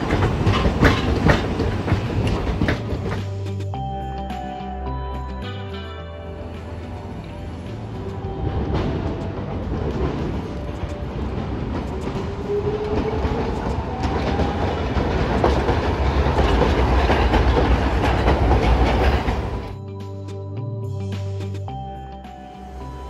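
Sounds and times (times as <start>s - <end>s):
tram wheels clacking over joints: 0.0s - 3.6s, 6.5s - 19.8s
tram rumble: 0.0s - 3.9s, 4.8s - 19.8s
music: 0.0s - 23.0s.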